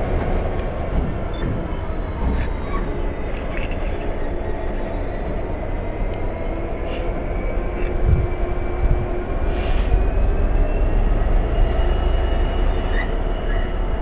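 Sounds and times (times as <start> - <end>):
diesel locomotive engine rumbling: 0.0 - 14.0
light clicks from train: 0.1 - 4.2, 6.0 - 8.2, 11.4 - 13.8.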